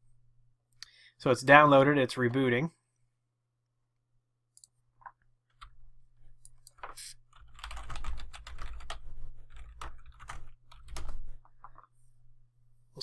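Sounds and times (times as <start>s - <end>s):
computer keyboard typing: 6.4s - 11.9s.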